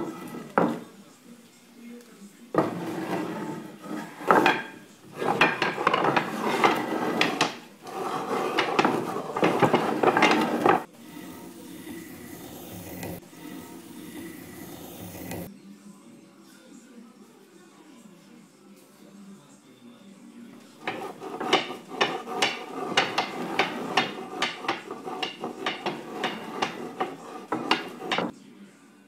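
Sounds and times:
wooden strips clattering: 0:02.6 - 0:15.5, 0:20.8 - 0:28.3.

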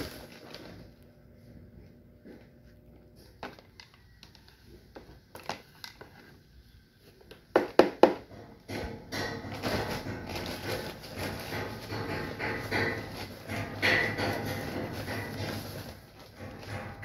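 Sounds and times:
sharp knocks on plastic pot: 0:07.5 - 0:10.4.

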